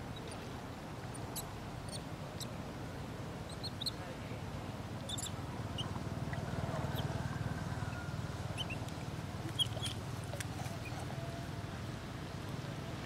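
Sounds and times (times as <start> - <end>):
monkey squeaking: 3.5 - 4.0, 5.1 - 7.1, 8.6 - 8.8, 9.5 - 10.0.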